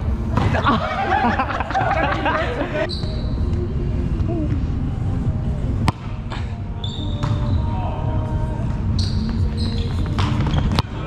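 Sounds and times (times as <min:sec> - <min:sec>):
sneaker squeaks on gym floor: 0:02.9 - 0:03.4, 0:06.8 - 0:07.6, 0:08.9 - 0:11.0.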